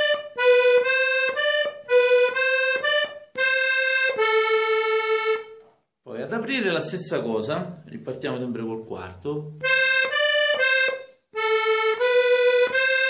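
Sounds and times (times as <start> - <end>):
button accordion melody: 0.0 - 5.8, 9.5 - 13.0.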